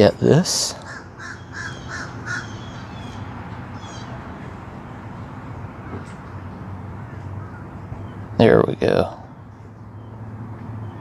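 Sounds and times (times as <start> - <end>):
low background noise: 0.0 - 11.0
bird calling: 0.7 - 6.3.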